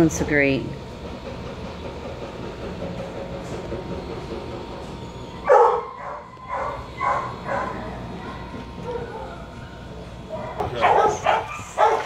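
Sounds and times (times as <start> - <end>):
dog barking: 5.4 - 9.4, 10.3 - 12.0.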